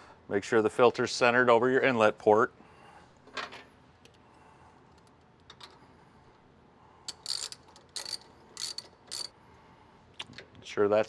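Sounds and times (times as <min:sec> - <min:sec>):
ratchet wrench clicking: 0:07.1 - 0:09.4.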